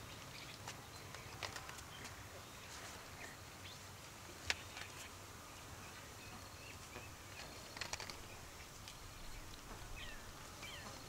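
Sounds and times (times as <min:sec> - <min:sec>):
faint bird chirps: 0:04.4 - 0:11.0.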